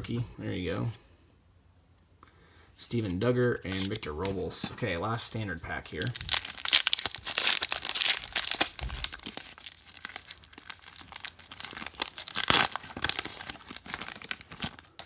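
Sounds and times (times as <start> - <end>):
foil wrapper tearing and crinkling: 6.0 - 15.0.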